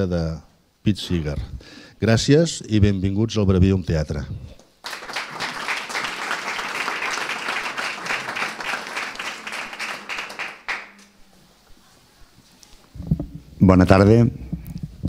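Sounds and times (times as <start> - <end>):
audience applauding: 4.8 - 11.2.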